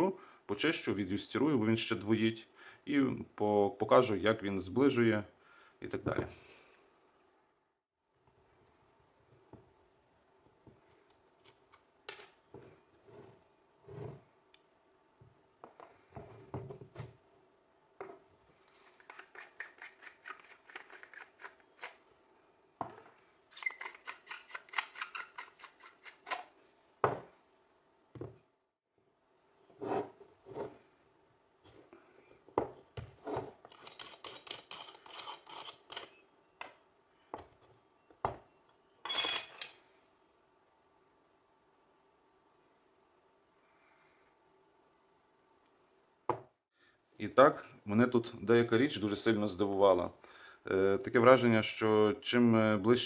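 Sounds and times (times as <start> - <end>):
parts knocking on wooden table: 15.6 - 17.1, 27.0 - 27.3, 28.2 - 28.4, 46.3 - 46.5.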